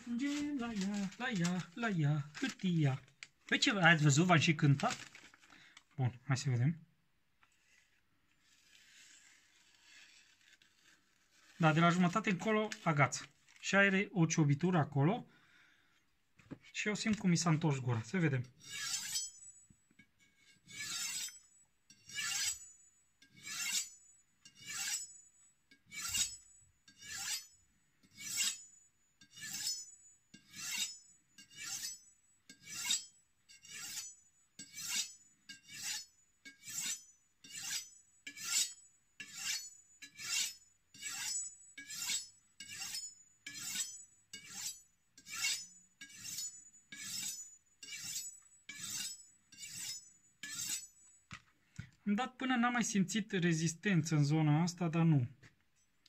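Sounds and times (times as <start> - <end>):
knife scraping on honing steel: 8.4 - 12.3, 18.4 - 51.4.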